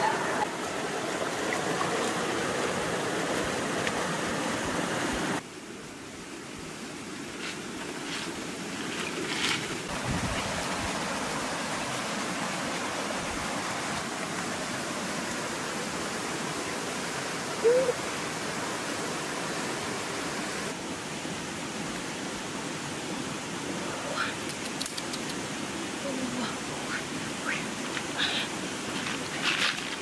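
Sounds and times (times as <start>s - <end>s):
river rushing: 0.0s - 6.2s, 7.8s - 24.4s.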